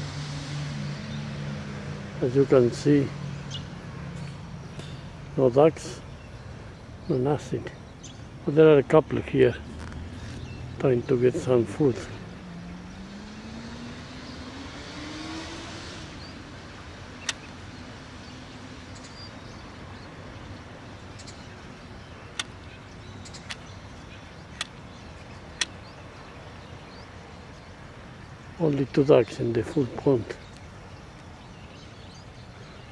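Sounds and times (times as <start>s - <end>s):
car passing and accelerating: 0.0s - 7.5s, 9.2s - 31.7s
sharp clicks: 17.2s - 17.5s, 22.3s - 22.6s, 23.2s - 23.7s, 24.5s - 24.9s, 25.6s - 25.8s.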